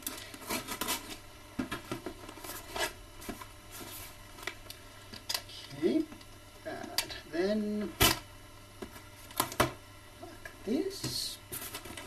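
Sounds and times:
box cutter scraping cardboard: 0.4s - 1.2s.

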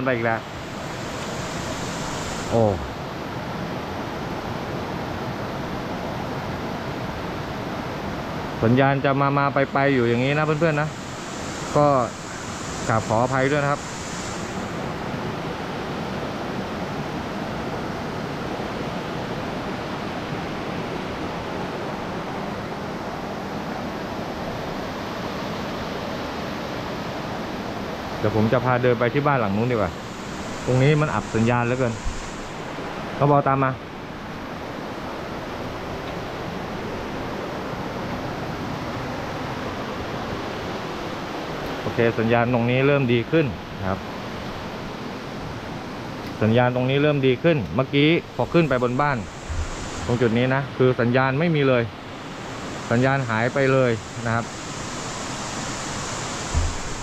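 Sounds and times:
waterfall rushing: 9.8s - 25.7s, 28.3s - 42.2s, 47.2s - 57.0s.

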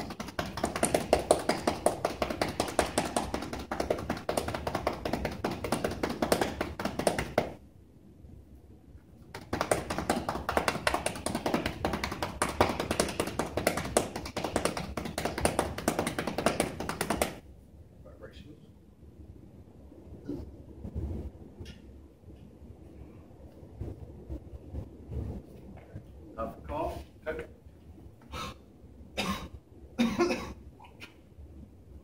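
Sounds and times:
cupped hands clapping on chest: 0.0s - 7.6s, 9.3s - 17.4s.

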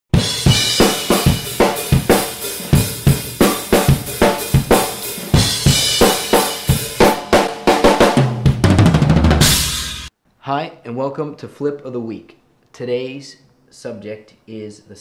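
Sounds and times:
drum kit beat: 0.1s - 10.1s.

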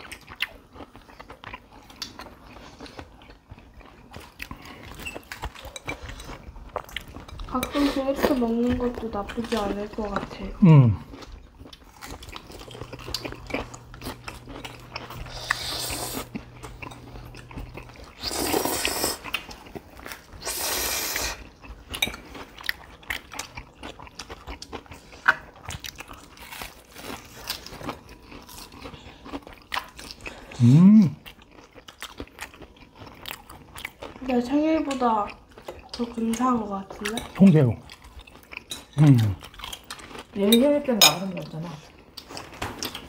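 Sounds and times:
people chewing and crunching food: 0.0s - 43.0s
person humming: 10.6s - 11.0s, 30.6s - 31.2s.

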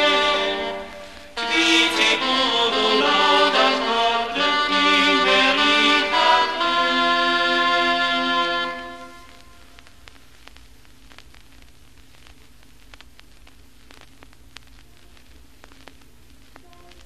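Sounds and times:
faint steady hiss: 0.0s - 17.0s
small clicks and crackles: 9.2s - 17.0s.

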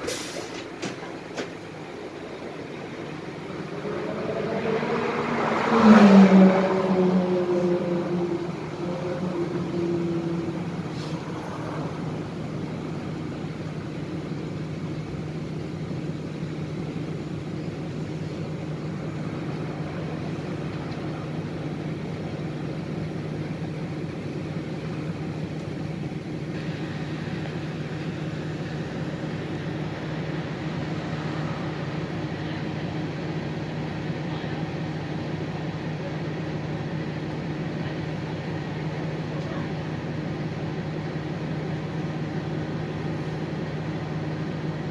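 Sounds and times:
bus engine idling: 0.0s - 44.9s
falling whine: 1.8s - 14.5s.

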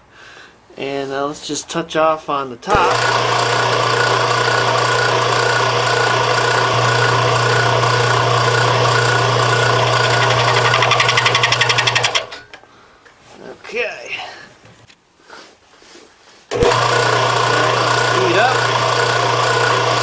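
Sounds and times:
milling machine spindle whirring: 2.7s - 12.4s, 16.5s - 20.0s.

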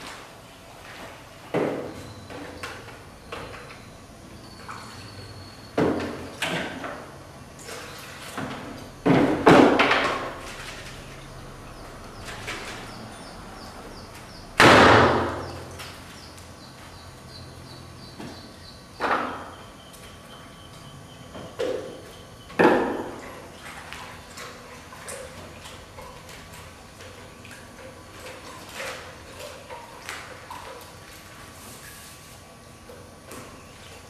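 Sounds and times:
knocks and thuds: 8.4s - 10.3s, 14.6s - 15.6s.

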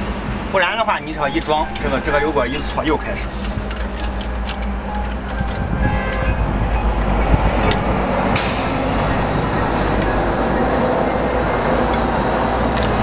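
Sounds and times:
engine humming: 0.0s - 13.0s
hiss: 8.4s - 9.0s.

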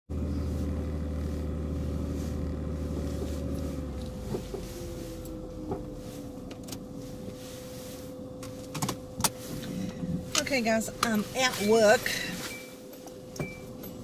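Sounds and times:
car engine and road noise: 0.1s - 14.0s.

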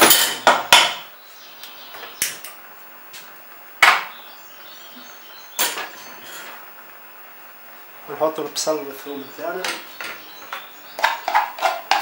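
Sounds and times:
cooking pots knocking and clanking: 0.0s - 1.1s, 3.8s - 4.1s, 9.6s - 12.0s.

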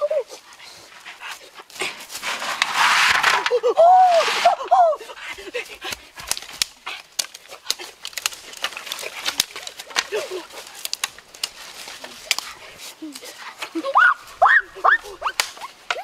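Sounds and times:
dry sticks snapping: 5.3s - 13.8s, 15.2s - 16.0s.

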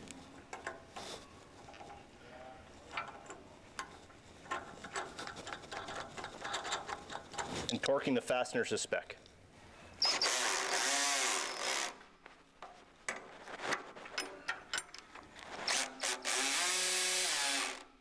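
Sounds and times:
power drill tightening bolts: 4.5s - 7.5s, 10.0s - 12.0s, 14.2s - 17.9s
wrench clicking on nuts: 4.5s - 7.5s.

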